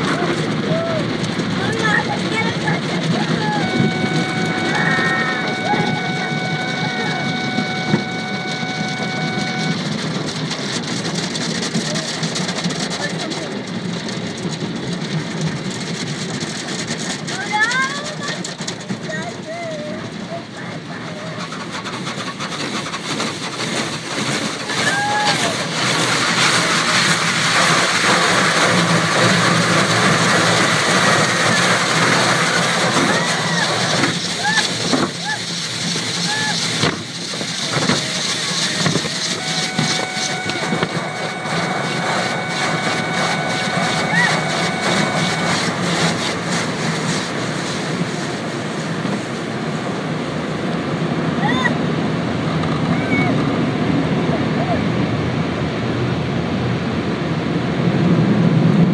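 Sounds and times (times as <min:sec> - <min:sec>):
wash brushes scrubbing windshield: 0:21.2 - 0:48.2
water spray: 0:21.3 - 0:49.4.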